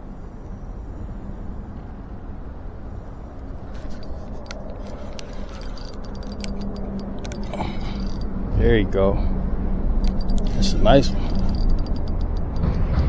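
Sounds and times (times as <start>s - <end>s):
fishing reel clicking: 3.9s - 8.3s, 10.0s - 12.9s.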